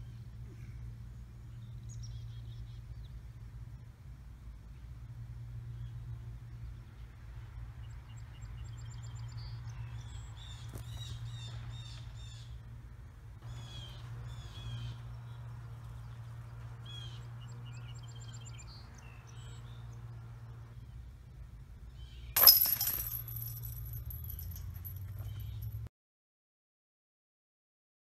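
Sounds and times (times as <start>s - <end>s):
songbirds chirping and trilling: 0.0s - 22.4s
low background hum: 0.0s - 25.9s.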